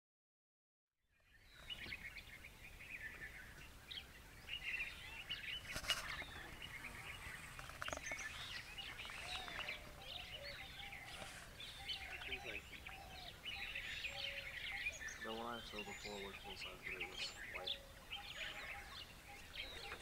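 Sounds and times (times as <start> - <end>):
birds chirping: 1.1 - 20.0.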